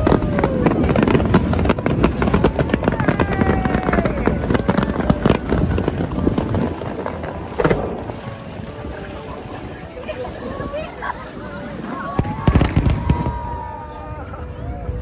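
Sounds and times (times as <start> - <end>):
firework bang: 0.0 - 8.4, 12.2 - 13.7
fireworks crackling and popping: 0.0 - 15.0.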